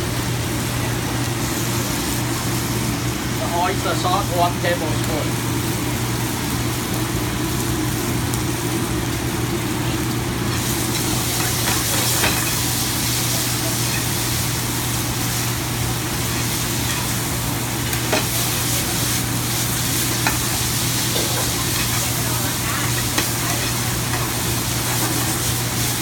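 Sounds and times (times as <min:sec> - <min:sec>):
food sizzling in a hot pan: 0:00.0 - 0:26.0.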